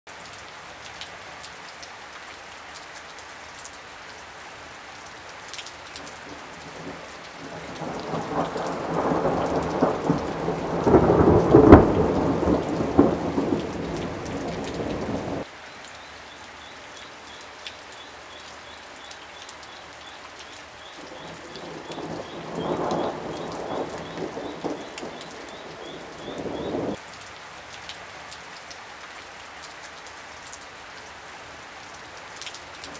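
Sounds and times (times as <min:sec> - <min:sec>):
steady rain falling: 0:00.1 - 0:32.9
thunder rolling: 0:07.5 - 0:15.4, 0:21.6 - 0:27.0.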